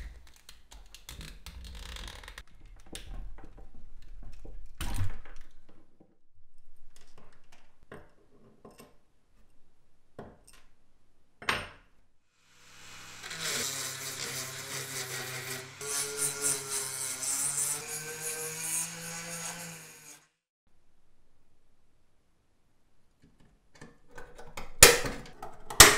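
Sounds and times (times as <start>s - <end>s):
rotary tool grinding metal: 12.6s - 20.4s.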